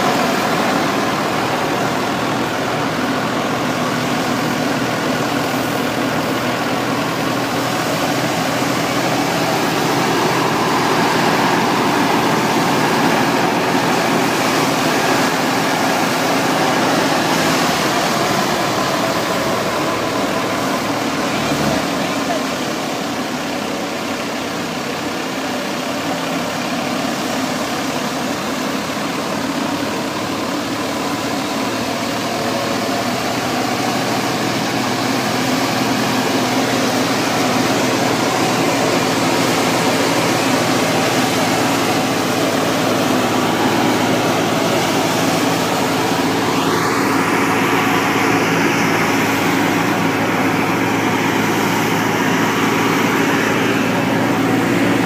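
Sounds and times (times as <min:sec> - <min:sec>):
thresher mechanical drone: 0:00.0 - 0:23.6
diesel engine low hum: 0:00.0 - 0:55.0
threshing drum hiss: 0:00.0 - 0:55.0.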